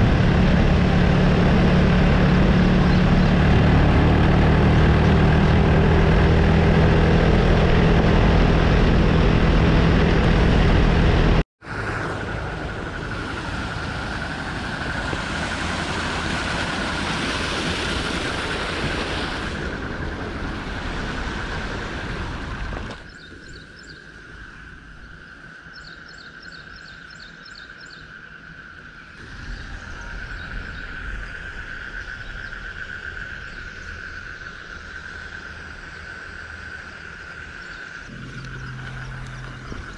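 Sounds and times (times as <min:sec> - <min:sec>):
steady rushing noise: 0:00.0 - 0:23.1
insects droning: 0:11.7 - 0:39.9.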